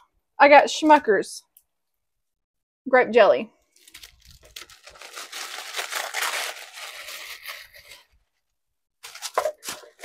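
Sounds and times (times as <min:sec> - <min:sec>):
packaging crinkling and rustling: 0:03.7 - 0:08.4, 0:09.0 - 0:10.0.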